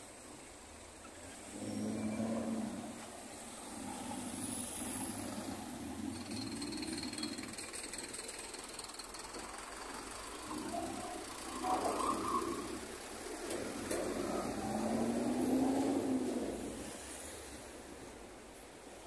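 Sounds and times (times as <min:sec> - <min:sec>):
steady traffic rumble: 0:00.0 - 0:19.0
vehicle passing close by: 0:10.1 - 0:17.3.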